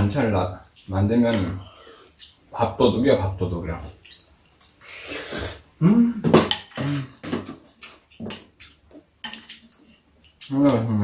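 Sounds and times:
mouth noise: 5.2 - 7.2
person humming: 5.8 - 7.2.

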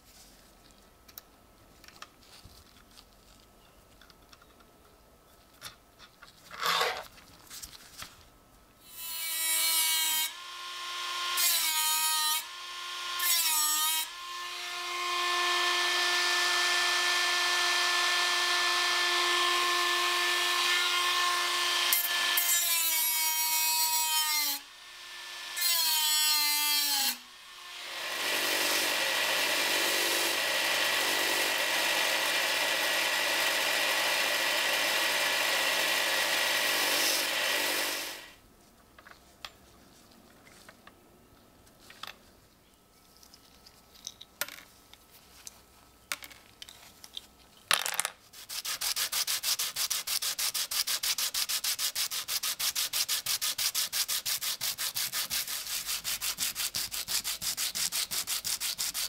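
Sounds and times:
rotary tool cutting sheet steel: 8.9 - 14.2, 15.4 - 38.4, 48.4 - 59.0.

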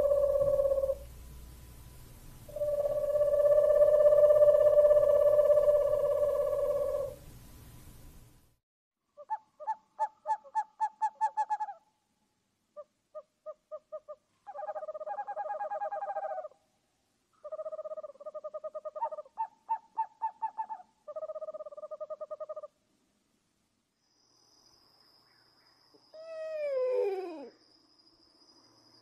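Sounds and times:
owl hooting and trilling: 0.0 - 1.1, 2.5 - 7.2, 9.2 - 11.8, 12.8 - 16.6, 17.4 - 22.7, 26.1 - 27.6.

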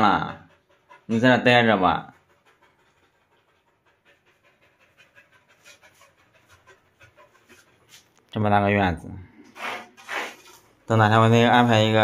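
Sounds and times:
dog panting: 0.0 - 8.3.

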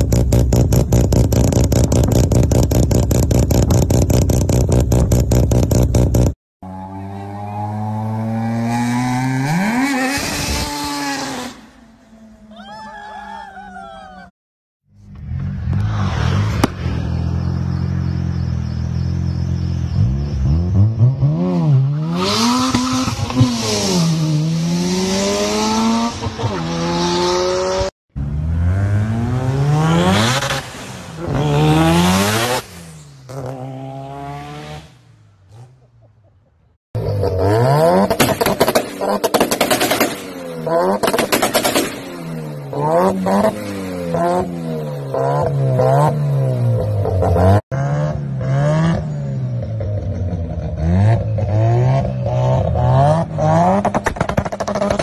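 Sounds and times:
rotary engine revving: 15.0 - 35.8
exhaust backfire bangs: 15.1 - 18.1
car passing by: 15.2 - 18.1.

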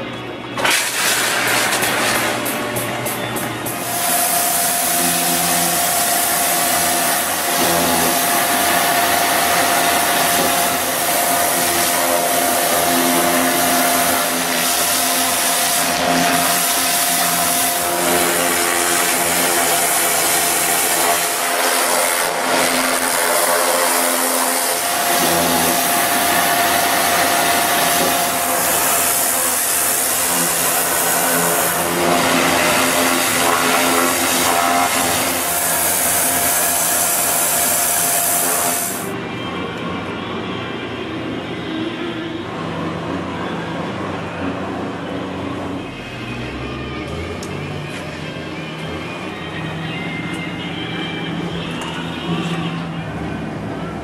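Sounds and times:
washer engine and pump whine: 0.0 - 54.0
pressure washer water jet hissing: 0.6 - 39.1.

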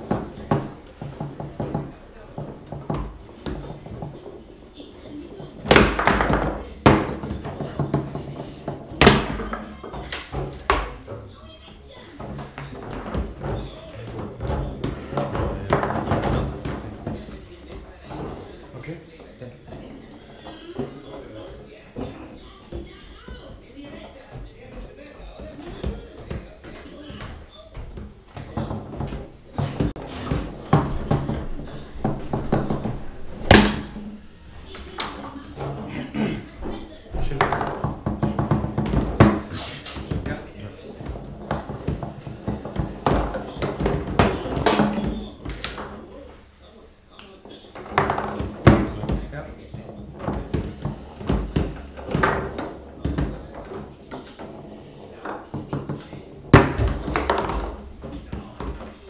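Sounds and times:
foosball rods knocking: 0.0 - 4.7, 5.3 - 11.3, 12.0 - 18.5, 19.6 - 35.9, 36.6 - 46.4, 47.4 - 59.0
foosball ball clacking: 5.4 - 11.2, 12.1 - 18.4, 25.4 - 35.9, 36.6 - 46.1, 47.6 - 59.0.

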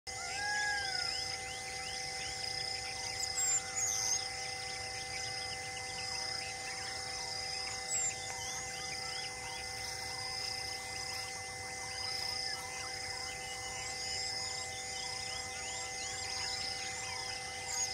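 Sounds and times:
sharp high bird calls: 0.1 - 10.4
insects trilling: 0.1 - 17.9
steady hum of held tones: 0.1 - 17.9
small birds chirping: 0.2 - 17.9.

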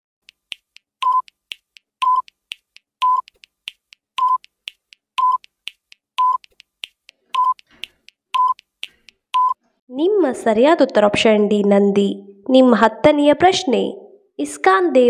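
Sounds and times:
sharp ticks: 0.2 - 9.6
short timer beeps: 0.3 - 2.4, 3.0 - 4.6, 5.2 - 5.5, 6.2 - 6.5, 7.4 - 7.6, 8.4 - 8.7, 9.4 - 9.6.

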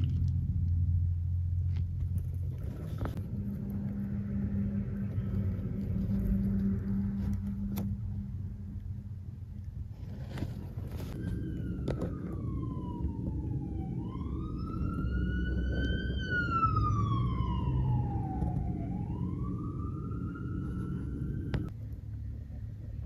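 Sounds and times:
road traffic rumble: 0.0 - 23.0
emergency vehicle siren wailing: 3.1 - 8.3, 11.0 - 21.7.

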